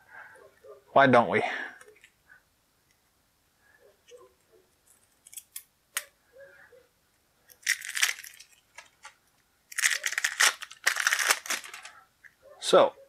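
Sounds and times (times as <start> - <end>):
wrapper crinkling: 7.5 - 12.0.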